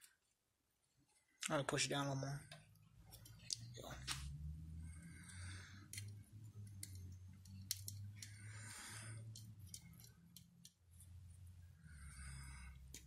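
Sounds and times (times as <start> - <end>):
metal parts and tools clicking: 5.9 - 8.4, 9.3 - 10.8.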